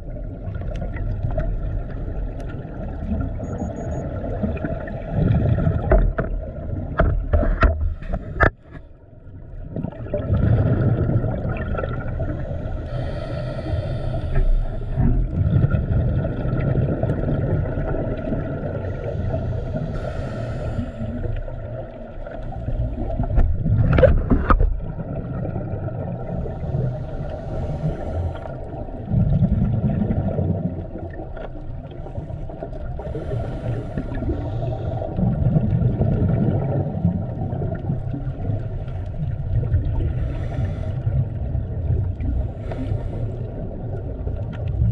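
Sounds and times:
muffled underwater rumble: 0.0 - 44.9
diver exhaling bubbles: 9.6 - 21.5, 22.6 - 31.3, 32.9 - 44.9.

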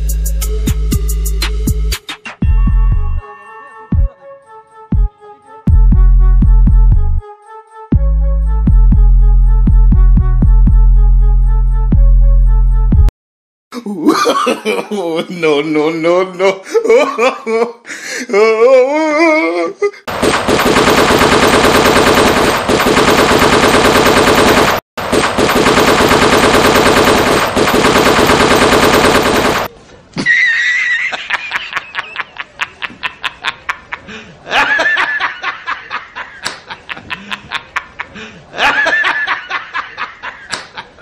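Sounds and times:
wavering voice: 18.3 - 20.0
rapid automatic gunfire: 20.1 - 29.7.

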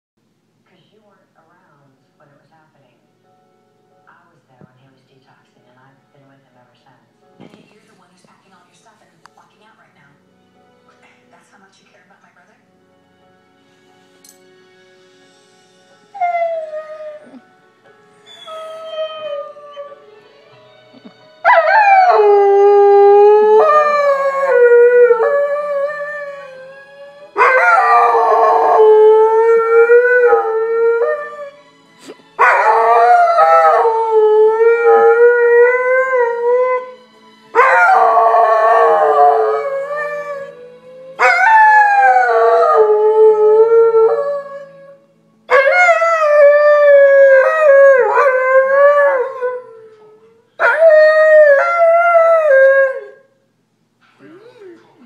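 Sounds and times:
television theme music: 0.2 - 55.0
dog howling: 18.3 - 20.0, 32.4 - 37.0, 37.6 - 53.2.

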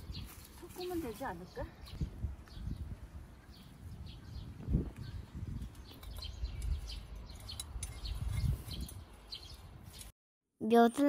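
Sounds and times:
small birds chirping: 0.0 - 10.1.

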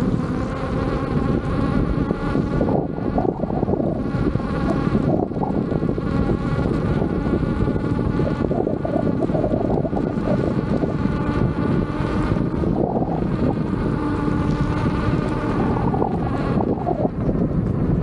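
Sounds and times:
electric motor whine: 0.0 - 18.0
wind and road noise: 0.0 - 18.0.

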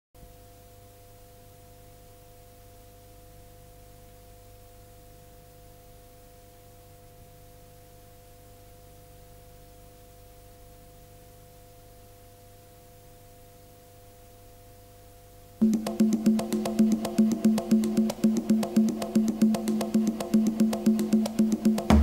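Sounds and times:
low hum and hiss: 0.2 - 22.0
steady pure tones: 15.6 - 22.0.

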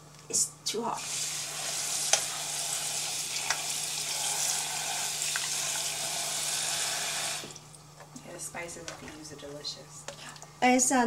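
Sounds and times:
faucet water splashing into pan: 1.0 - 7.8.

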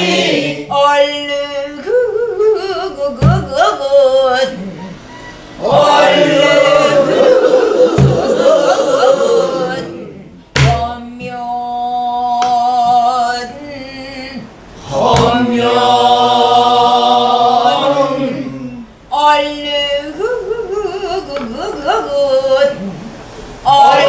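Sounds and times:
solo voice singing: 0.0 - 5.0, 5.6 - 24.0
voices singing together: 0.0 - 24.0
drum strikes: 3.2 - 3.6, 5.6 - 6.1, 7.8 - 8.6, 10.5 - 11.0, 15.0 - 15.6.

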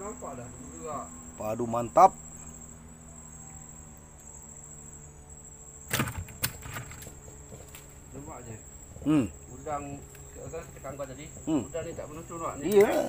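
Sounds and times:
crickets trilling: 0.0 - 13.0
low steady hum: 0.0 - 13.0
sharp knocks: 5.9 - 7.2.

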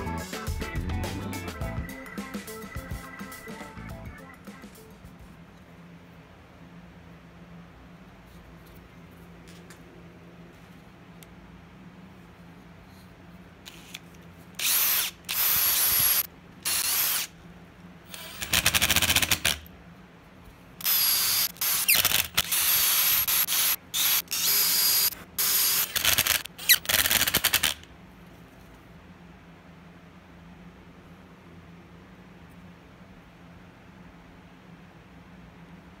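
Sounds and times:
cordless drill running: 14.6 - 17.3, 18.1 - 19.6, 20.8 - 27.8.

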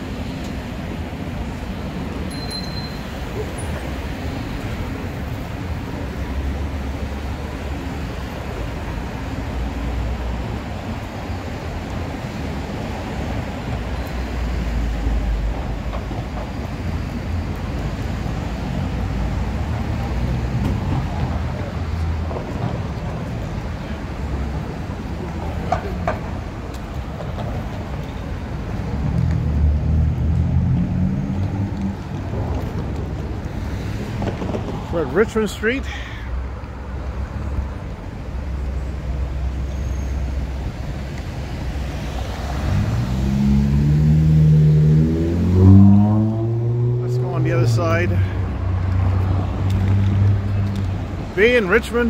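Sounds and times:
rumble of passing traffic: 0.0 - 52.0
short high squeal: 2.3 - 3.8.

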